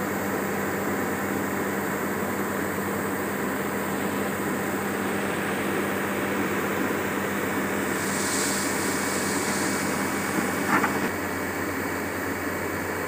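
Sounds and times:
excavator engine running: 0:00.0 - 0:13.0
brief hiss: 0:04.8 - 0:11.2.

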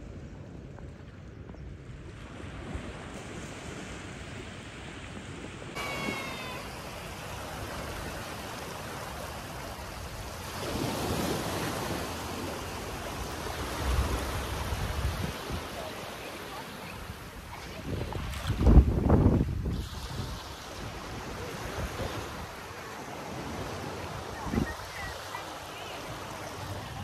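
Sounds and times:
small waves washing on sand: 0:00.0 - 0:27.0
wind buffeting microphone: 0:17.0 - 0:22.6.

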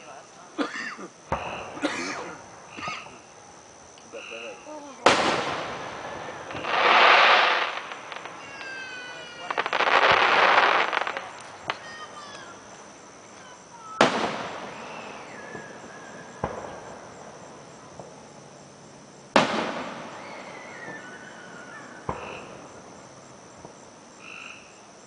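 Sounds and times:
lighter fireworks bangs: 0:00.0 - 0:24.8
fireworks booming: 0:00.6 - 0:24.2.

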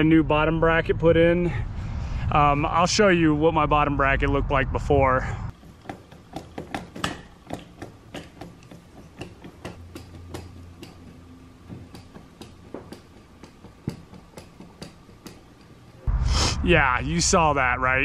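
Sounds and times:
bicycle crank clicking and knocking: 0:05.5 - 0:16.0.

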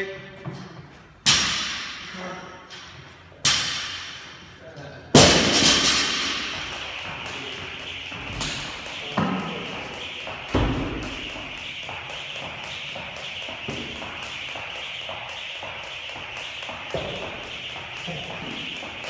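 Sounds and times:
jump rope slapping rubber floor: 0:05.2 - 0:19.0.

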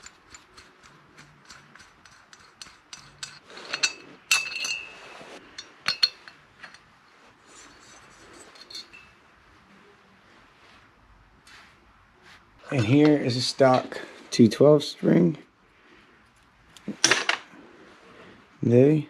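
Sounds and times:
metal clicks and clinks: 0:00.0 - 0:06.9, 0:07.6 - 0:09.2.

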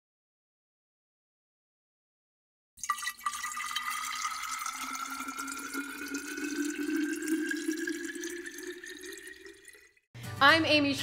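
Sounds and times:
beer pouring into a glass: 0:02.8 - 0:10.0.

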